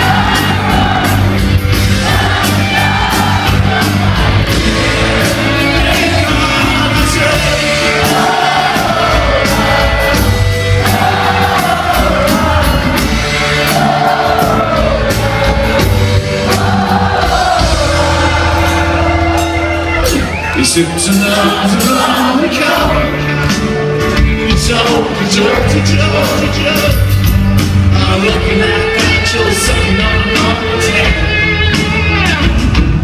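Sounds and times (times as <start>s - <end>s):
live rock band: 0.0s - 33.0s
person singing: 4.7s - 16.0s, 27.9s - 31.6s.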